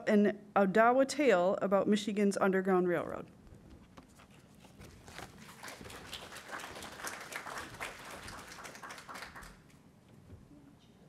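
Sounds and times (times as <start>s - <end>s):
audience applauding: 5.2s - 9.8s.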